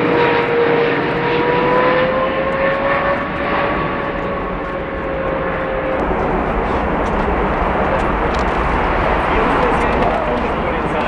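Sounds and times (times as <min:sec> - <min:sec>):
jet engines whining: 0:00.0 - 0:11.0
rushing noise: 0:05.9 - 0:11.0.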